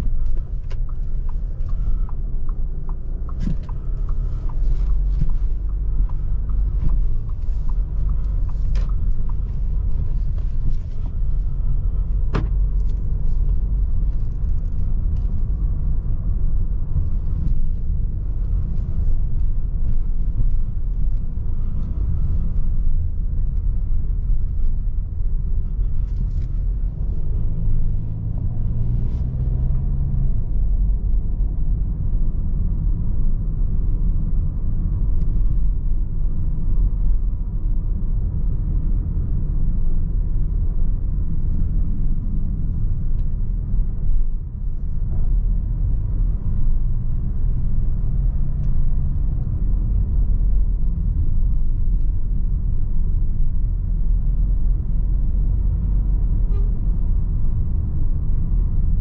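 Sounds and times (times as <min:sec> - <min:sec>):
car engine and tyres rumbling: 0:00.0 - 0:59.0.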